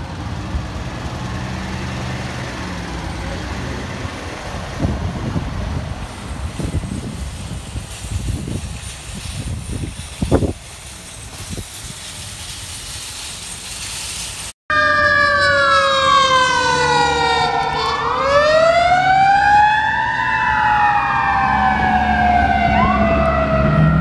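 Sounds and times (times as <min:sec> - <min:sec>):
truck engine rumble: 0:00.0 - 0:24.0
fire truck siren wailing: 0:14.7 - 0:24.0.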